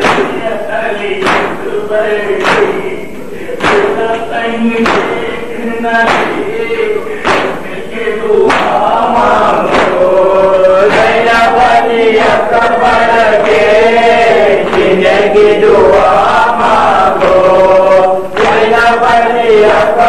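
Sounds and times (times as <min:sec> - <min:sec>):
man chanting a lament: 0:00.0 - 0:20.0
faint regular thuds: 0:06.0 - 0:07.6.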